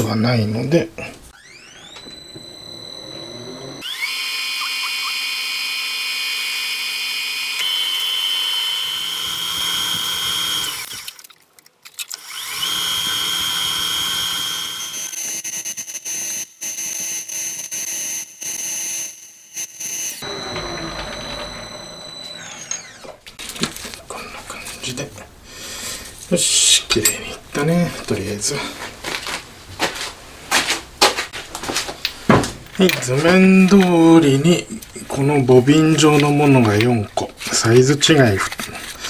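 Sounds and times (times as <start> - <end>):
metal lathe machining with whine: 1.4 - 11.0, 12.2 - 15.2, 17.2 - 23.2.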